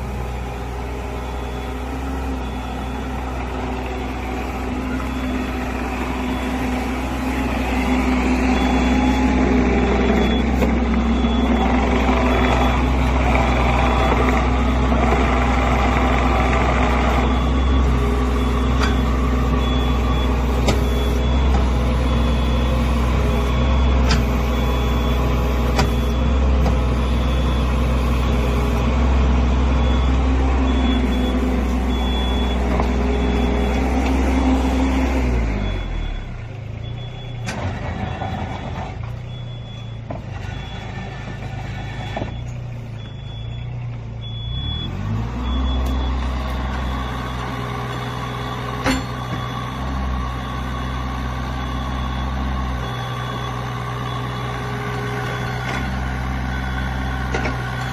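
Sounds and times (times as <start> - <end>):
excavator diesel engine running: 0.0 - 57.9
faint high beep: 1.1 - 9.4, 29.8 - 33.8.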